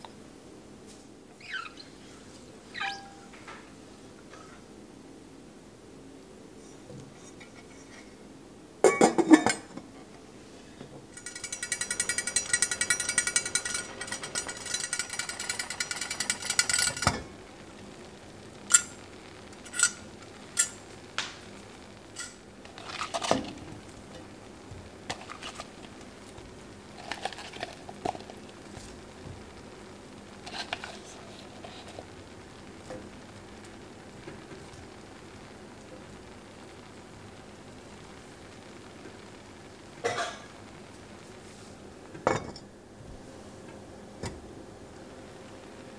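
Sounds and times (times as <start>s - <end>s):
pot clattering: 8.8s - 9.8s, 11.2s - 17.3s.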